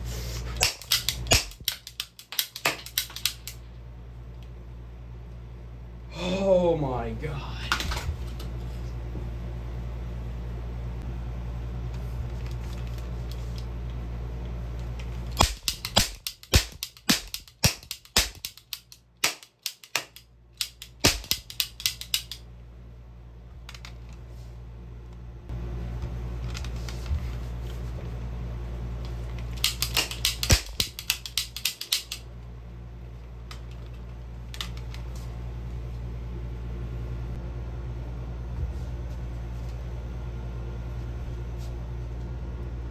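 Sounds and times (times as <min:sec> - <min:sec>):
steady low hum: 0:00.0 - 0:42.9
rapid sharp clicks: 0:15.4 - 0:22.4, 0:29.6 - 0:32.2.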